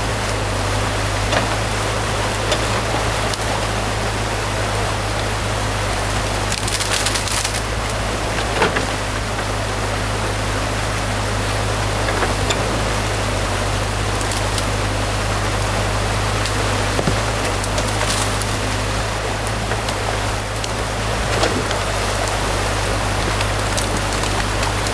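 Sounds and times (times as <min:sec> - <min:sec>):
excavator diesel engine running: 0:00.0 - 0:24.9
water rushing: 0:00.0 - 0:24.9
branches cracking and snapping: 0:06.0 - 0:08.0, 0:14.1 - 0:14.9, 0:16.4 - 0:24.9.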